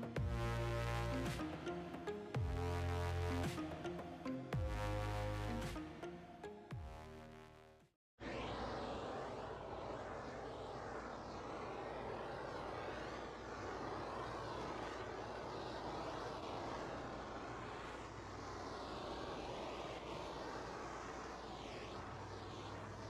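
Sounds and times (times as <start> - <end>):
power tool whooshing drone: 8.2 - 23.0.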